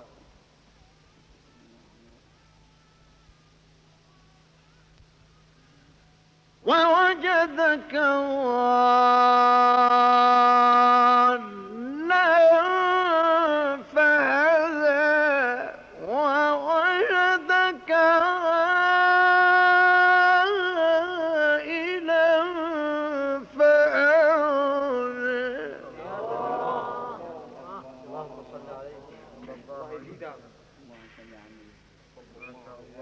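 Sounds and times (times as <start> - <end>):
man chanting melodically: 6.6 - 31.2.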